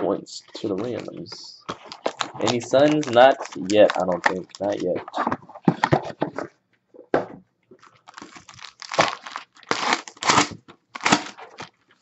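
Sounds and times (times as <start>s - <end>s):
foil wrapper tearing and crinkling: 0.8s - 4.9s, 7.8s - 11.8s.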